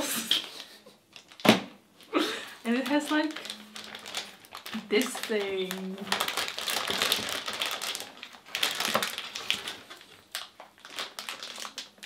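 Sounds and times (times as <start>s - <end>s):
foil bag crinkling: 0.6s - 1.6s, 2.7s - 12.0s.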